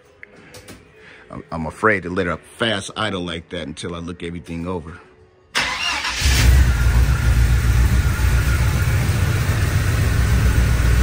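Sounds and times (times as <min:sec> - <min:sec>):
engine cranking: 0:05.6 - 0:07.1
engine rumbling idle: 0:06.4 - 0:11.0.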